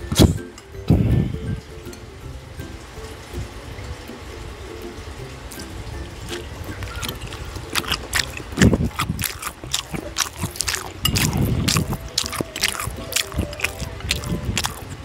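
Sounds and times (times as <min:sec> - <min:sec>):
sticky mouth clicks: 0:06.3 - 0:15.0
wet chewing and lip-smacking: 0:06.3 - 0:15.0.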